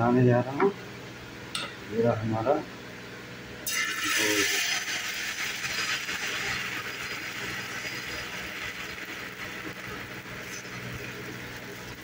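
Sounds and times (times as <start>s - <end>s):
batter sizzling on griddle: 3.6s - 12.0s.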